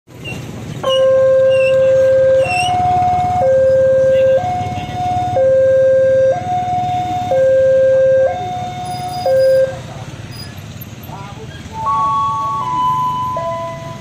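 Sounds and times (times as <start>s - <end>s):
level crossing two-tone alarm: 0.8s - 9.8s, 11.8s - 14.0s.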